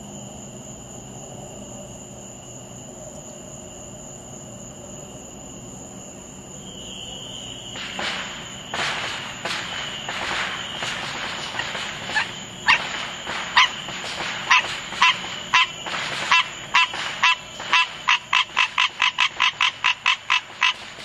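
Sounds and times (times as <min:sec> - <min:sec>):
frog honking calls: 0:14.5 - 0:20.8.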